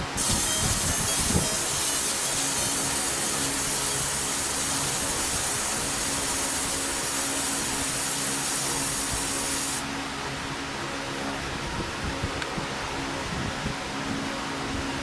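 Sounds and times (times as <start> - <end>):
laser engraving hiss: 0.0 - 9.8.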